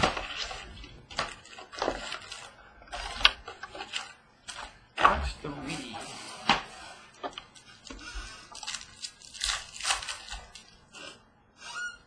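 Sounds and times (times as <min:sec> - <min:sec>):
packaging crinkling: 0:00.0 - 0:04.8, 0:07.1 - 0:10.8.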